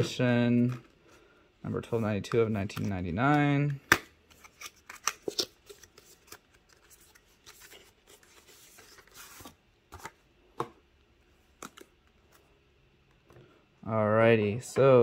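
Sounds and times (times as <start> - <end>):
cardboard packaging rustling: 4.4 - 10.2.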